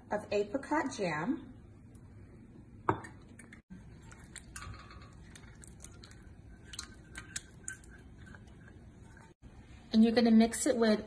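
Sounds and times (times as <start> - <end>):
spatula squelching and scraping jam: 3.7 - 9.4.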